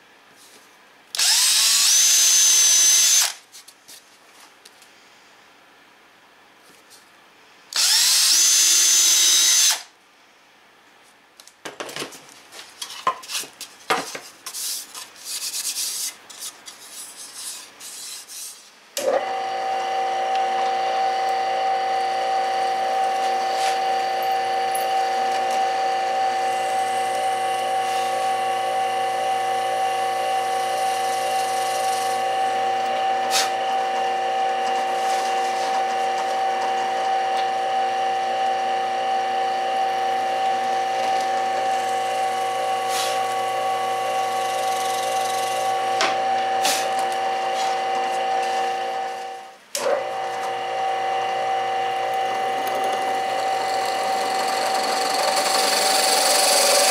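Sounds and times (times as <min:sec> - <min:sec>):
drill press motor humming: 0:01.2 - 0:03.3, 0:07.8 - 0:09.8, 0:19.0 - 0:56.9
cordless drill drilling wood: 0:01.2 - 0:03.4, 0:07.8 - 0:09.9, 0:19.0 - 0:56.9.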